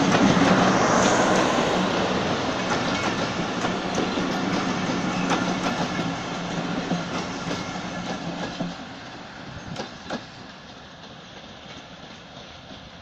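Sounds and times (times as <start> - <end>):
train rolling on rails: 0.0 - 13.0
wheel clacks over rail joints: 2.6 - 8.9.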